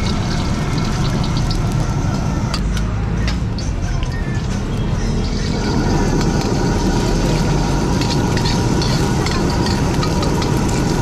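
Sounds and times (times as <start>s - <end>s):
egg sizzling in oil: 0.0s - 1.8s, 5.2s - 11.0s
gas burner rumbling: 0.0s - 11.0s
metal ladle scraping wok: 5.2s - 11.0s.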